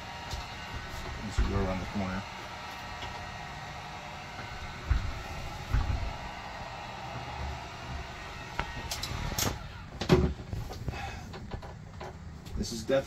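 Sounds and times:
heat gun blowing: 0.0s - 10.0s.

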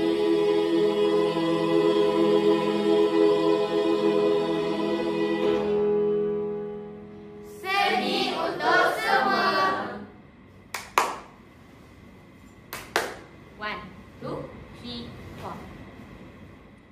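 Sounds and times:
choir holding a chord: 0.0s - 10.2s.

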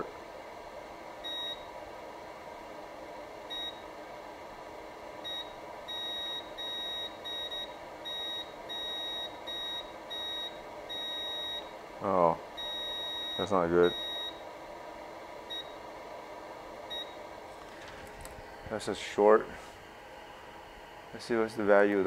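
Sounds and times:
multimeter continuity beeps: 1.2s - 1.7s, 3.5s - 3.8s, 5.2s - 11.8s, 12.6s - 14.4s, 15.5s - 15.8s, 16.9s - 17.2s.

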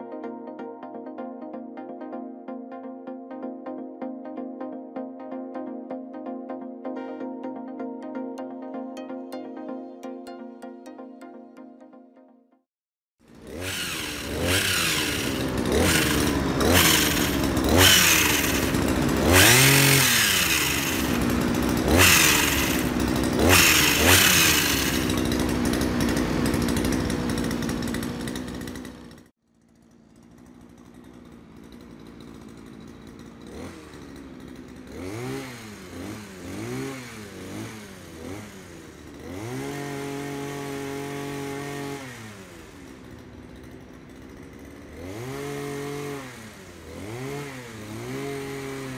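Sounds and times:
pole pruner engine revving: 13.2s - 48.9s.

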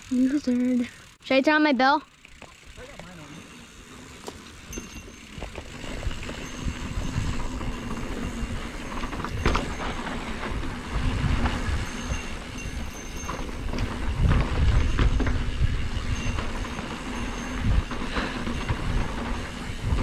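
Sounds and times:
bike rattling and clicking: 0.0s - 20.0s
bike tyres on packed dirt: 0.0s - 20.0s
wind rumbling on camera: 4.6s - 20.0s.

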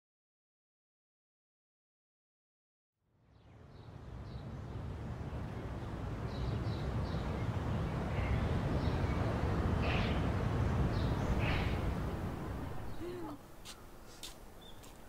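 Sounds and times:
low background rumble: 3.4s - 14.7s.

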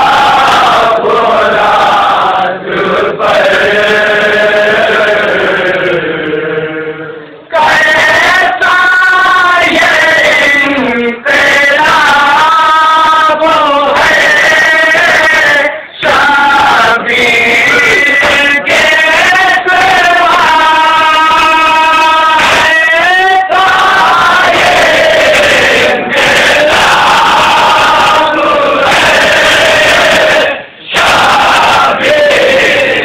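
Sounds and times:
men chanting a lament in chorus: 0.0s - 33.0s.

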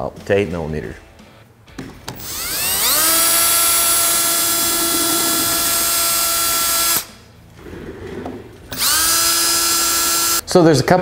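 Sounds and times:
cordless drill whining: 2.2s - 7.1s, 8.7s - 10.4s.

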